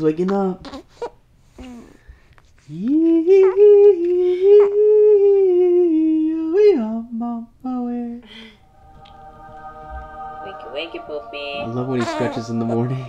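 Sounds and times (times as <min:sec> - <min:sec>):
person humming: 0:02.8 - 0:06.5, 0:08.0 - 0:13.0.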